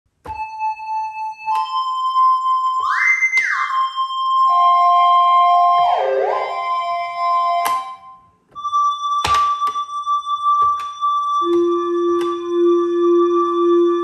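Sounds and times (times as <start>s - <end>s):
pitch-bent synthesizer notes: 0.3s - 14.0s.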